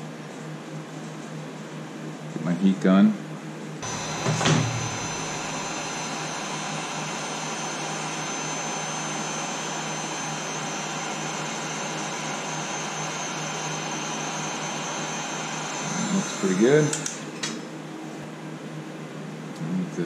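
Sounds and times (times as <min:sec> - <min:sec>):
heat gun running: 0:03.8 - 0:17.4.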